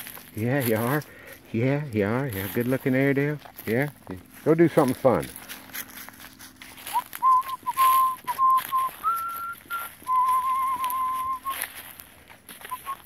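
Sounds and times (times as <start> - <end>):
person whistling: 6.9 - 11.6, 12.7 - 13.0.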